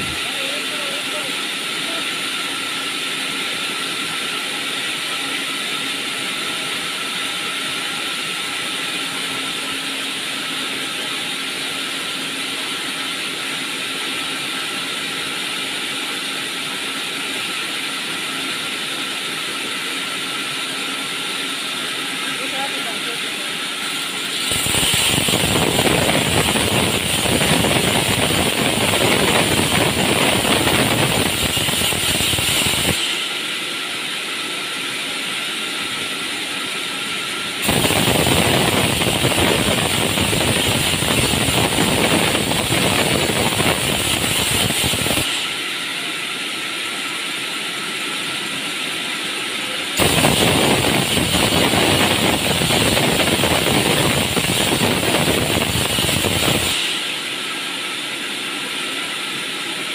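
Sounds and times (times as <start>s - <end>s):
band saw running idle: 0.0s - 59.9s
band saw cutting timber: 19.0s - 49.0s, 49.7s - 57.9s.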